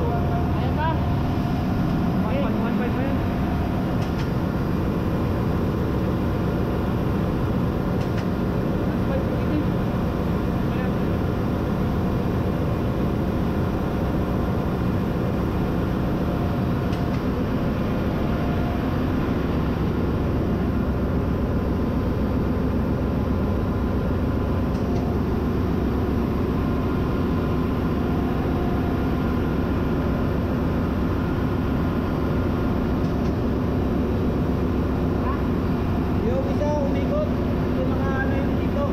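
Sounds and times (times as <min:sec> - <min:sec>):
engine room machinery drone: 0:00.0 - 0:38.9.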